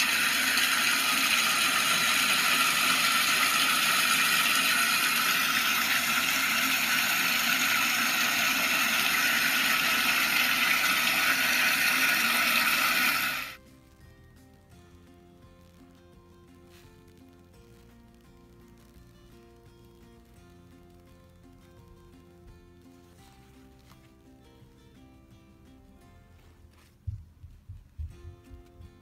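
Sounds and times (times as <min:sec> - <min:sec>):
tap water filling bathtub: 0:00.0 - 0:13.6.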